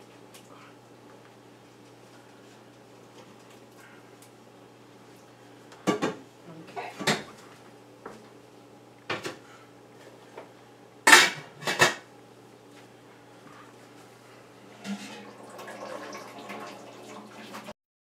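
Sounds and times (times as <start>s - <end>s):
metal pots and pans clanking: 14.7s - 15.9s.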